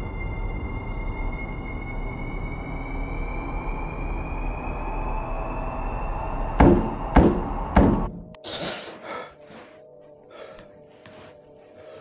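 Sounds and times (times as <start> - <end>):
horror drone with rising tones: 0.0 - 8.4
faint eerie music: 0.0 - 12.0
loud knocks: 6.6 - 8.2.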